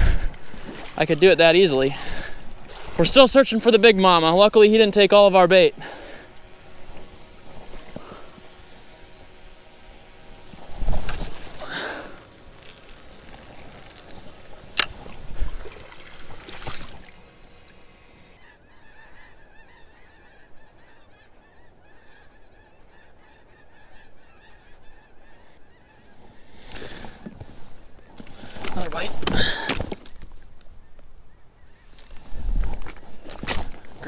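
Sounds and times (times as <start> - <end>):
water splashing against rocks: 14.7 - 17.2.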